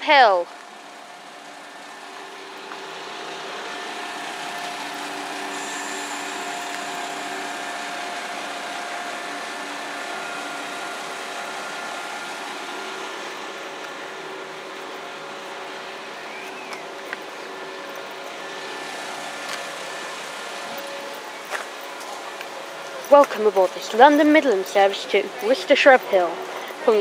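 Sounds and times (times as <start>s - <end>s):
diesel train running: 0.0s - 27.0s.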